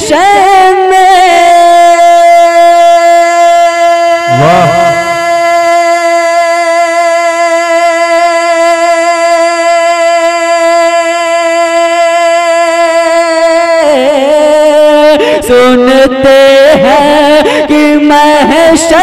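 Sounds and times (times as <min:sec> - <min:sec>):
man singing devotional song: 0:00.0 - 0:19.0.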